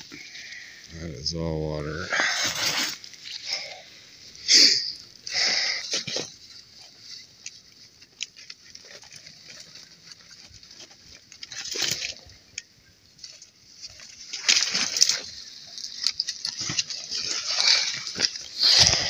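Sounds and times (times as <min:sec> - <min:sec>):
heavy breathing: 0:03.4 - 0:06.1, 0:17.5 - 0:19.0.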